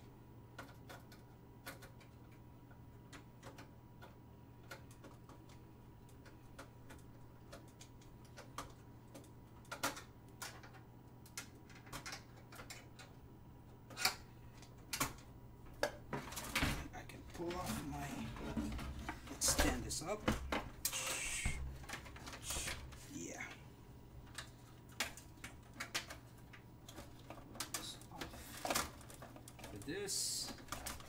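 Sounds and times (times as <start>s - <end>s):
faint steady hum: 0.0s - 31.0s
clicks of computer parts handled: 6.6s - 13.2s.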